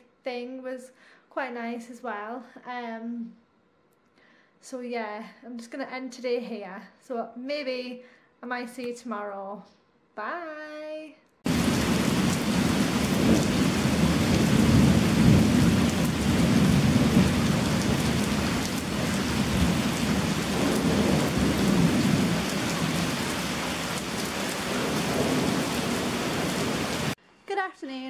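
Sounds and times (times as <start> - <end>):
heavy rain falling: 11.5 - 27.2
thunder rumbling: 11.5 - 27.2.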